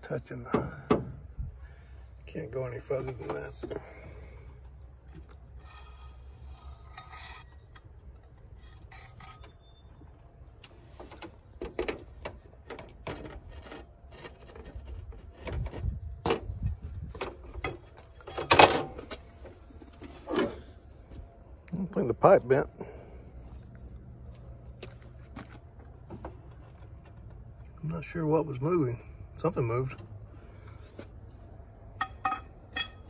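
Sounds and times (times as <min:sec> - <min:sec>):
steel pipe scraping and knocking: 0:05.1 - 0:09.8, 0:11.0 - 0:16.4, 0:32.0 - 0:33.0.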